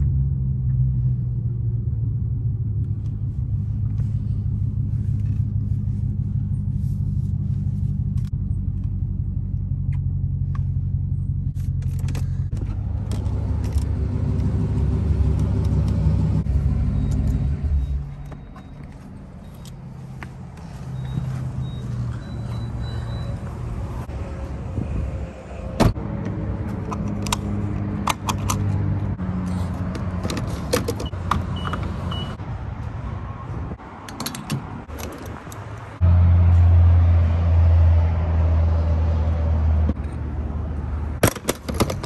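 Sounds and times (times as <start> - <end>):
loud low hum: 0.0 - 18.2
low vehicle hum: 0.0 - 42.0.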